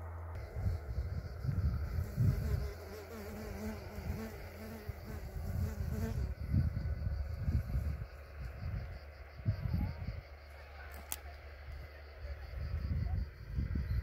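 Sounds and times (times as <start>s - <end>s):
low rumbling on microphone: 0.0s - 2.8s, 3.8s - 10.5s, 11.4s - 14.0s
insect buzzing: 0.4s - 9.4s.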